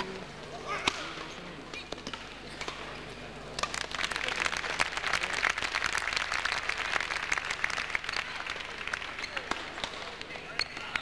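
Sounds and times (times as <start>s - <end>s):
spectators clapping: 3.5s - 10.3s.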